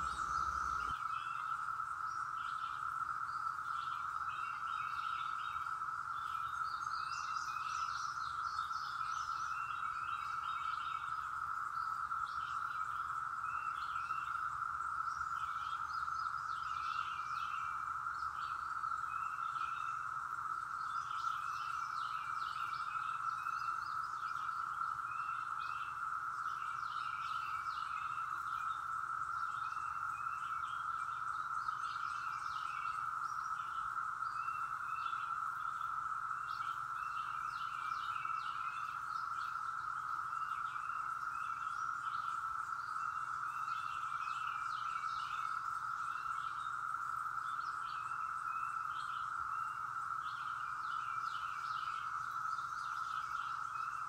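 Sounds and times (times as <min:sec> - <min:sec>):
birds chirping: 0:00.0 - 0:01.0
cicadas droning: 0:00.0 - 0:54.0.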